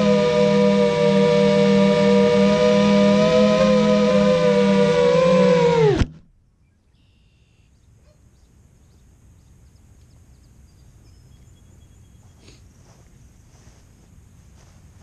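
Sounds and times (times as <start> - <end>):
drone motors whining down: 0.0 - 6.2
faint outdoor ambience: 0.0 - 15.0.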